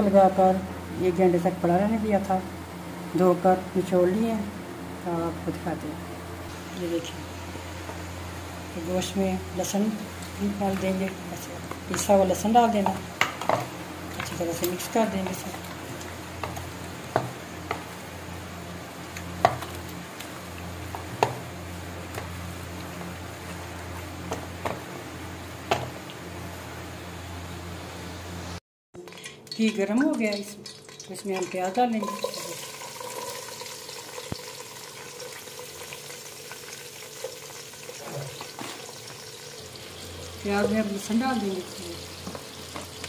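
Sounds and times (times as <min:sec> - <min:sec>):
onions sizzling in fat: 0:06.4 - 0:28.6, 0:32.0 - 0:43.0.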